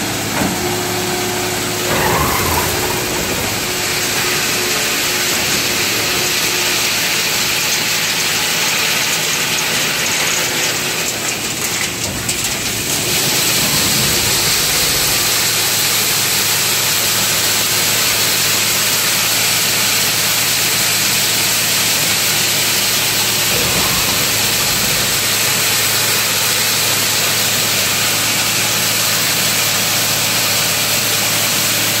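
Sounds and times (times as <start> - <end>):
harvester engine and machinery: 0.0 - 32.0.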